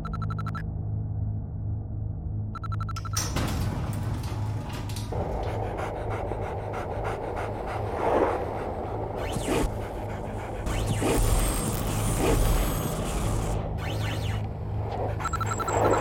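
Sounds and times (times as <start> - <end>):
low steady drone: 3.2 - 16.0
dog panting: 5.2 - 12.4.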